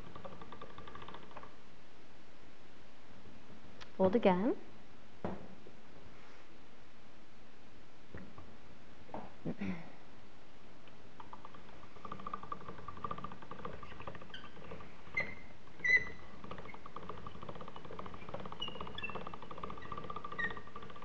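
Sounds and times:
hand-cranked pasta roller whirring: 0:00.0 - 0:01.5, 0:11.2 - 0:21.0.

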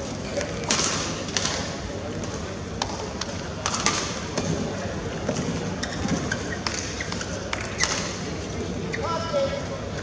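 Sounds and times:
arena crowd hubbub: 0:00.0 - 0:10.0
racket hitting shuttlecock: 0:00.4 - 0:03.0, 0:03.6 - 0:04.6.

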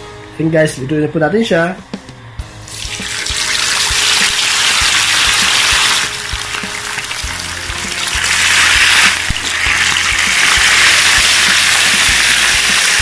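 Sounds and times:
oil sizzling and bubbling: 0:02.7 - 0:13.0.

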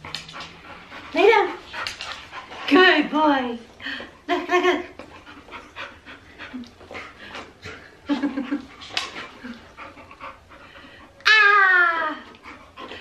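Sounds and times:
dog panting: 0:00.0 - 0:11.2, 0:12.2 - 0:13.0
woman speaking: 0:01.2 - 0:01.6, 0:02.7 - 0:03.7, 0:04.3 - 0:05.0
woman laughing: 0:08.0 - 0:08.8.

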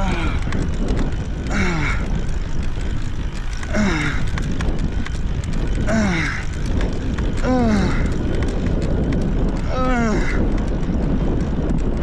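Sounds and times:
person groaning with effort: 0:00.0 - 0:00.6, 0:03.6 - 0:04.4, 0:05.8 - 0:06.6, 0:07.4 - 0:08.2, 0:09.6 - 0:10.5
wind buffeting microphone: 0:00.0 - 0:12.0.

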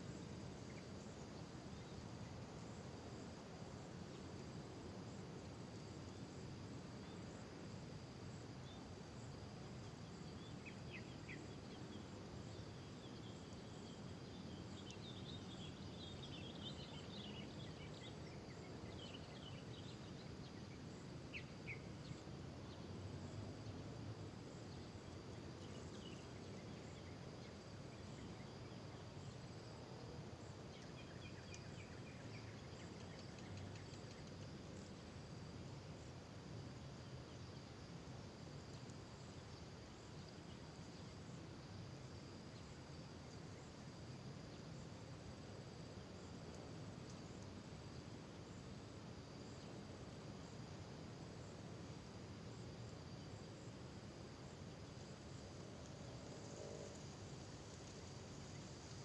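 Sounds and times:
faint bird chirps: 0:30.7 - 0:35.0.

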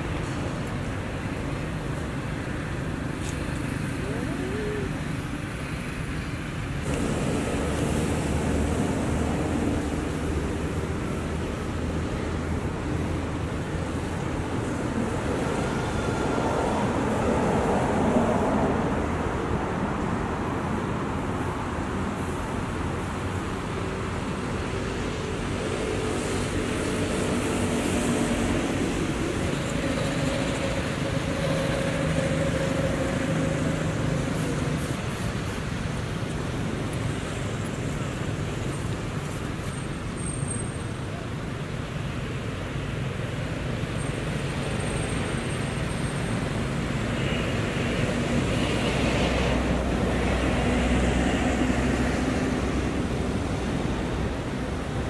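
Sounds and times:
outdoor background rumble: 0:00.0 - 0:55.0.

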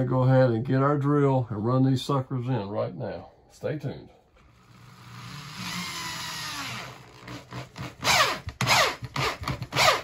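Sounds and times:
power drill driving a screw: 0:04.6 - 0:10.0.

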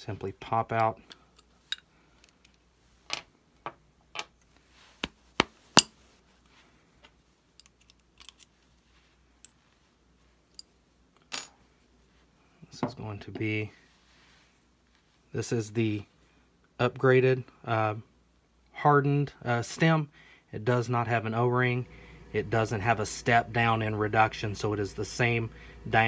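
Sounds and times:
small metal parts clinking: 0:01.1 - 0:03.3, 0:07.5 - 0:08.6, 0:10.5 - 0:11.6.

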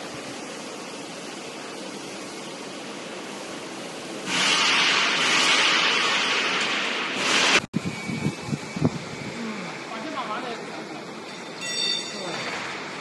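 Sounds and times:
chips streaming out with loud hiss: 0:04.2 - 0:07.7.

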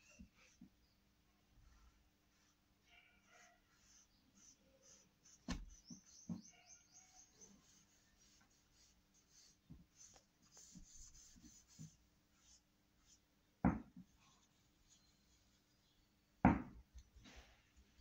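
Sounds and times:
marker scratching on paper: 0:01.7 - 0:13.2.

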